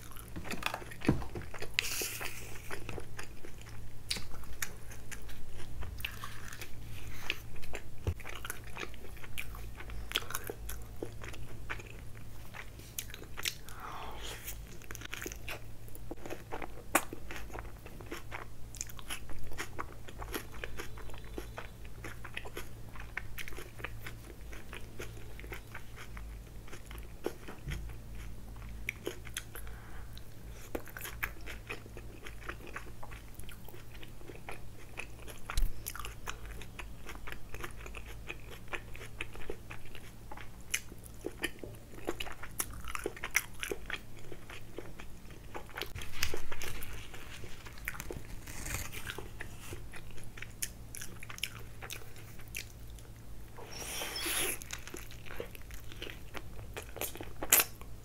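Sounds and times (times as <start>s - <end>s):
close chewing with wet mouth clicks: 14.7s - 29.6s, 30.6s - 53.1s.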